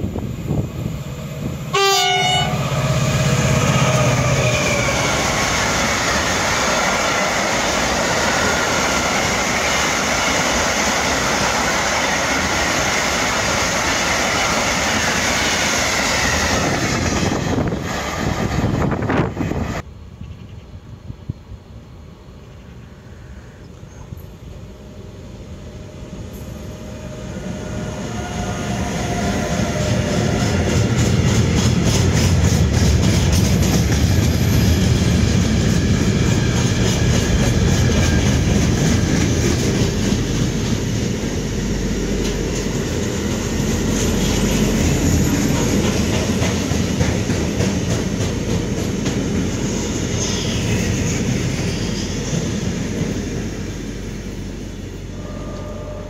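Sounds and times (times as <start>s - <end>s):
freight train wheels clattering: 29.0s - 50.2s.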